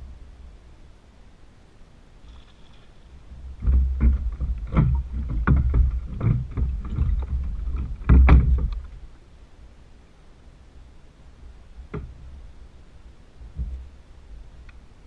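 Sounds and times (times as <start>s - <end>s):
knocks on plastic kayak hull: 3.6s - 8.9s.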